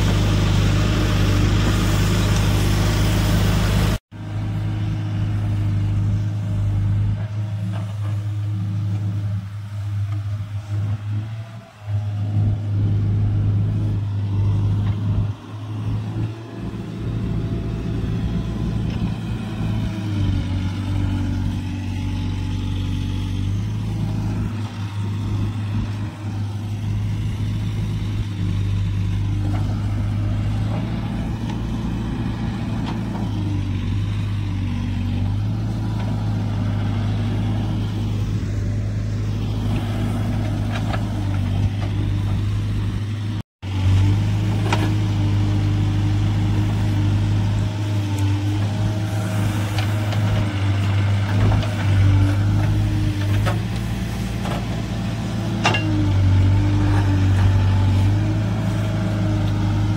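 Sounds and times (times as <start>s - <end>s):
backhoe loader diesel engine: 0.0s - 59.9s
diesel tractor engines running: 0.0s - 59.9s.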